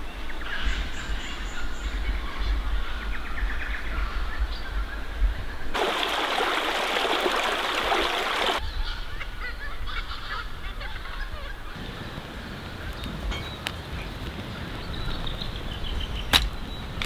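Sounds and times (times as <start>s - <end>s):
birds chirping: 5.7s - 8.9s
creek running and splashing: 5.8s - 8.6s.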